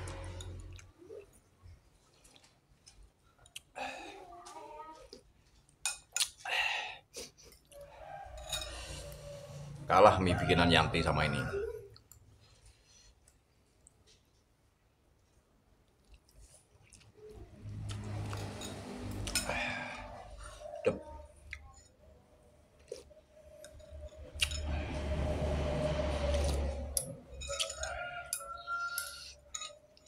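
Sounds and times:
man chewing: 0:00.0 - 0:03.8, 0:15.8 - 0:20.6, 0:22.7 - 0:27.8
cutlery clinking on glass bowl: 0:08.3 - 0:09.1, 0:27.4 - 0:29.8.

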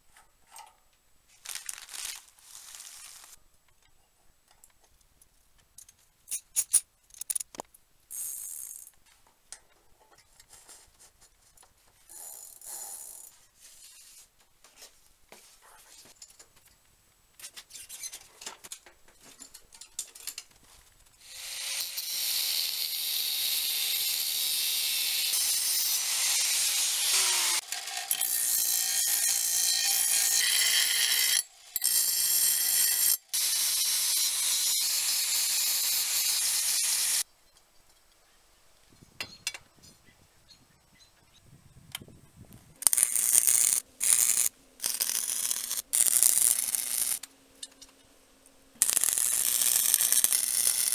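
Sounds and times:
electric welding crackling: 0:01.4 - 0:03.4, 0:42.8 - 0:47.2, 0:48.8 - 0:50.9
bench grinder grinding steel: 0:21.2 - 0:37.2, 0:42.8 - 0:47.2, 0:48.8 - 0:50.9
bicycle chain and sprocket clicking: 0:42.8 - 0:47.2, 0:48.8 - 0:50.9.

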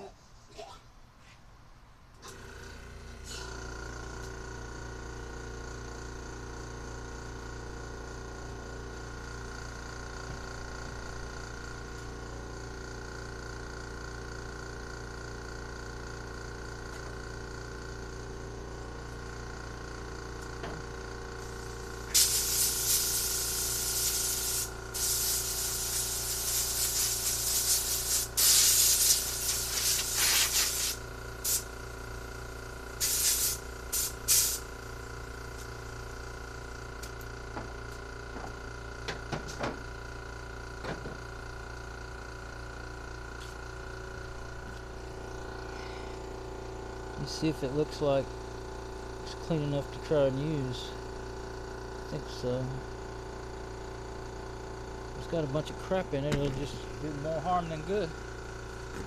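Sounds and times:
compressed air hissing: 0:21.4 - 0:31.7, 0:33.0 - 0:35.0.

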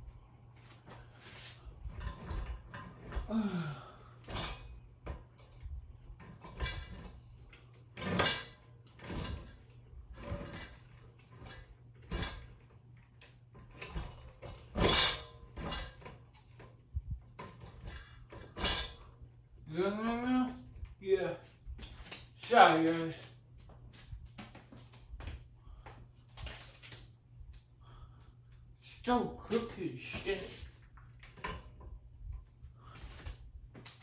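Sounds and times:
ceiling fan motor hum: 0:00.0 - 0:34.0
fan clunking: 0:00.6 - 0:19.3, 0:29.0 - 0:34.0.

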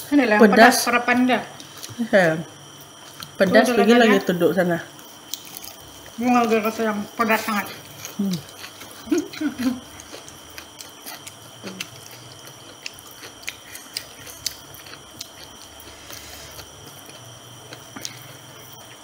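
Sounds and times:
faint steady hum: 0:00.0 - 0:19.0
crunching fried chicken: 0:05.0 - 0:06.2, 0:07.3 - 0:19.0
wet chewing: 0:05.0 - 0:06.2, 0:07.3 - 0:19.0.

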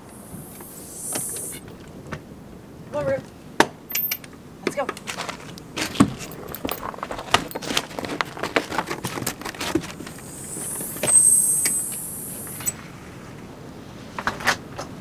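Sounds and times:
rushing hiss with high tone: 0:00.0 - 0:01.7, 0:09.7 - 0:12.8
collar tags jingling: 0:06.2 - 0:12.8.

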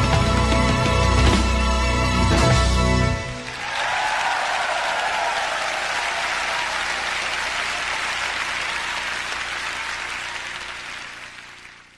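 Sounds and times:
concert audience applauding: 0:03.2 - 0:11.9.

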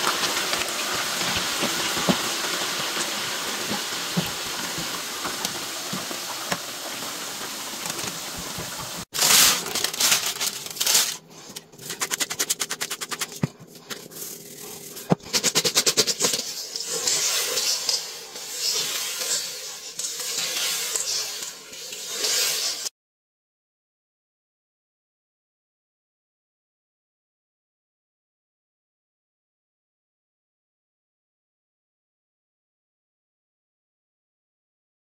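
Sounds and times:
chips frying in hot oil: 0:00.0 - 0:13.4, 0:14.0 - 0:22.9
fries rustling in metal bowl: 0:00.0 - 0:22.9.

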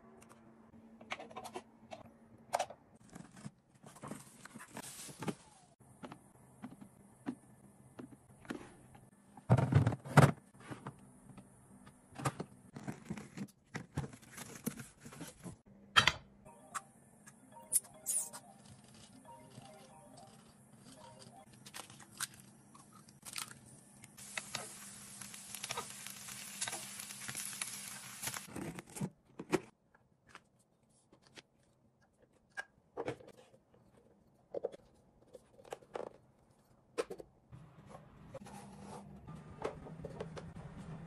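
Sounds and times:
crackling hiss: 0:24.2 - 0:28.5.

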